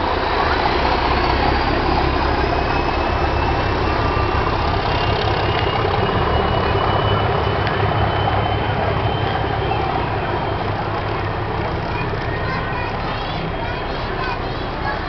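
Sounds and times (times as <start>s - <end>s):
faint high whine: 0.0s - 15.0s
train rumble: 0.0s - 15.0s.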